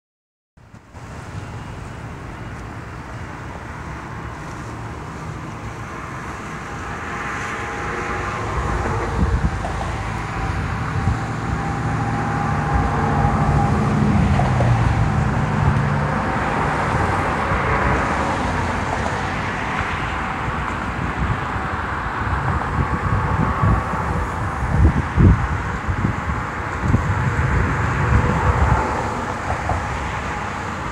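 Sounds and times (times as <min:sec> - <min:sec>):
engine and traffic rumble: 0:00.6 - 0:30.9
wind buffeting microphone: 0:04.2 - 0:30.9.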